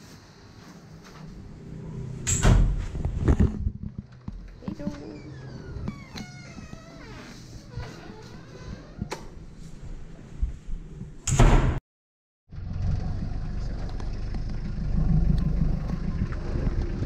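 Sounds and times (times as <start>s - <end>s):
vehicle engine droning: 1.2s - 3.0s, 12.5s - 17.0s.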